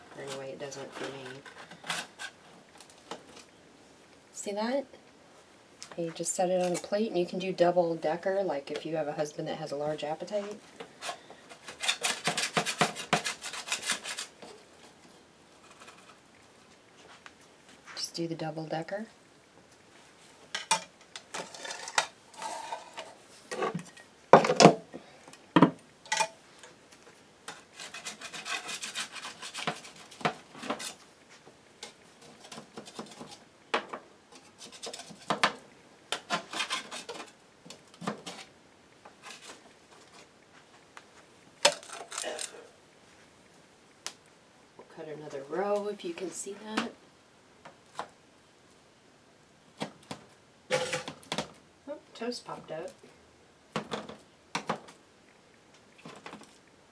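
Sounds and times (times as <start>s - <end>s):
metal spatula scraping sheet pan: 10.4s - 14.4s, 27.6s - 31.0s, 36.2s - 37.3s.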